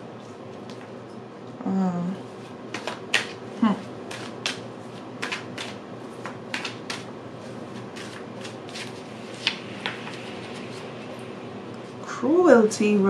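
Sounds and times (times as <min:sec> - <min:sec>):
faint steady hum: 0:00.0 - 0:13.0
cards being shuffled: 0:02.7 - 0:03.4, 0:04.1 - 0:11.0.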